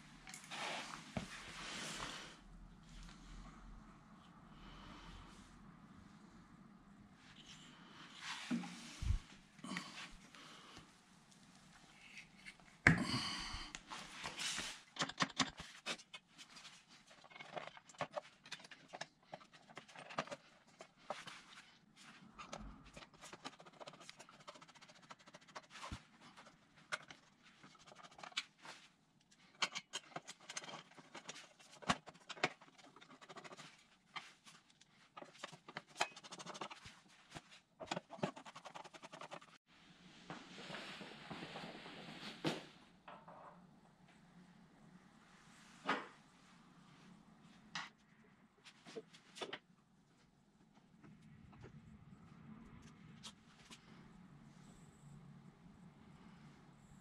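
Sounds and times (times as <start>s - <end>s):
rustling and scraping: 0.2s - 3.3s, 7.3s - 10.4s, 13.9s - 39.6s.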